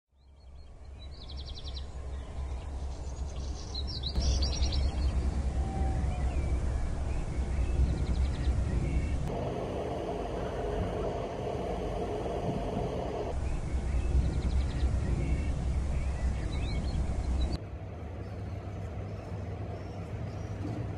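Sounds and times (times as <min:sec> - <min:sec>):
birds chirping: 0:00.2 - 0:17.6
low rumble: 0:04.1 - 0:17.6
steady higher hum: 0:04.2 - 0:17.6.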